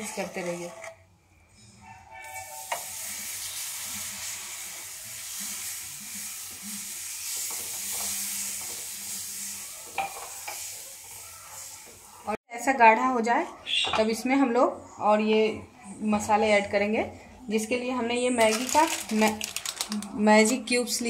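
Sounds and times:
wooden spatula stirring: 0.0s - 1.0s
roux sizzling in frying pan: 2.2s - 12.4s.

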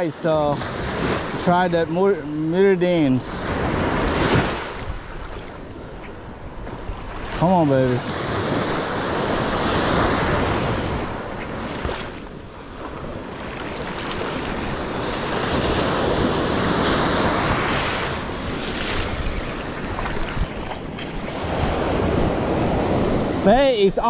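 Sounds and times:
wind on microphone: 0.6s - 24.0s
surf breaking on sand: 6.8s - 23.8s.

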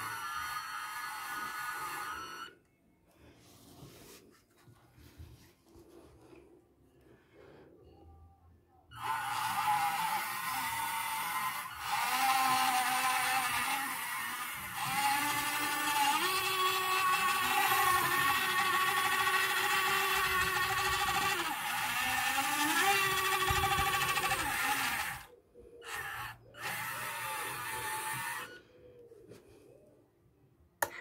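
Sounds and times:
electric motors whining: 0.0s - 2.7s, 8.9s - 28.7s.

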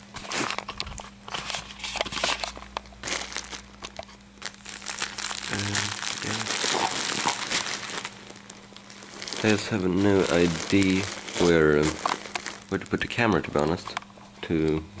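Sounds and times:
plastic bag crinkling: 0.1s - 14.8s
short low hums: 5.4s - 15.0s.

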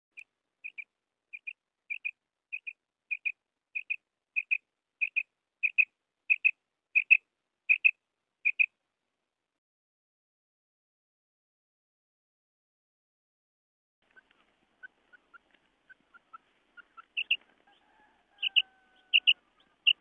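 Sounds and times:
quail calling: 0.6s - 8.7s, 14.1s - 20.0s.

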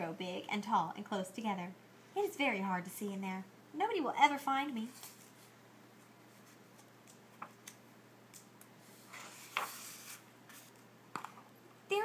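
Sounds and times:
book page turning: 4.9s - 11.4s.

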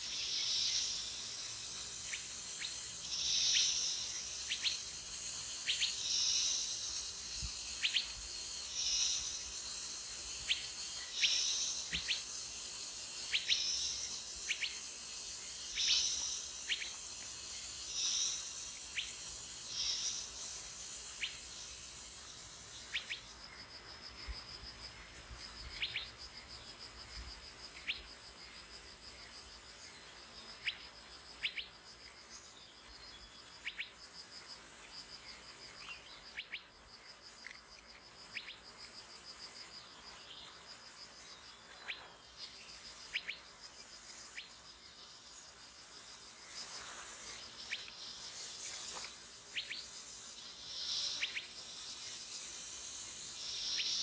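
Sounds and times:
fast-pulsing insect trill: 0.0s - 27.0s, 38.1s - 54.0s
insects buzzing in bursts: 0.0s - 54.0s.

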